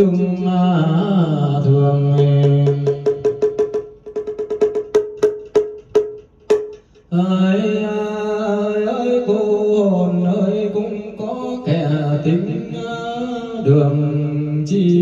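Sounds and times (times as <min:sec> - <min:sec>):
person chanting: 0:00.0 - 0:03.3, 0:07.1 - 0:15.0
pitched percussion strokes: 0:02.0 - 0:07.4.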